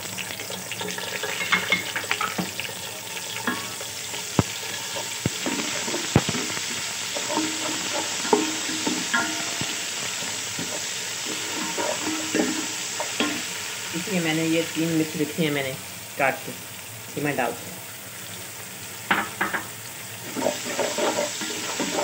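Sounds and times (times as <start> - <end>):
onions sizzling in hot oil: 0.0 - 22.0
wooden spoon scraping metal pot: 3.4 - 14.1, 20.2 - 22.0.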